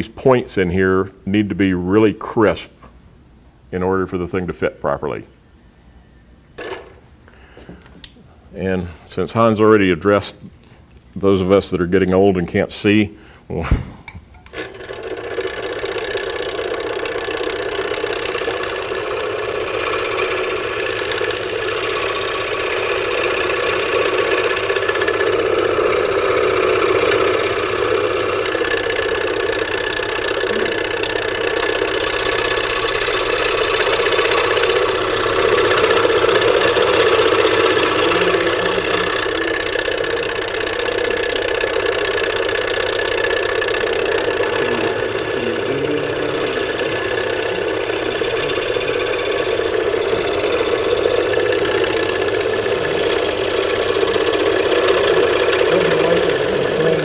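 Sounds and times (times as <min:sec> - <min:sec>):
scroll saw cutting wood: 0:14.5 - 0:57.0.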